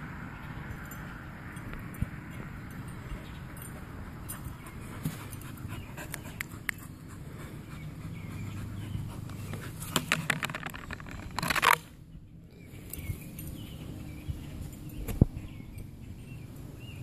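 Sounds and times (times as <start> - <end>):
dog panting: 3.7 - 9.8.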